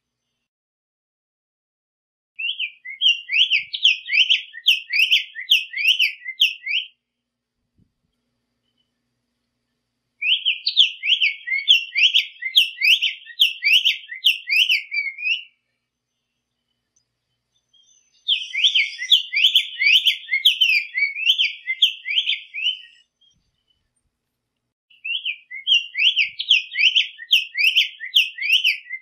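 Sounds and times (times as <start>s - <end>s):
bird whistling song: 2.4s - 7.0s, 10.2s - 15.7s, 17.5s - 23.8s, 24.9s - 29.0s.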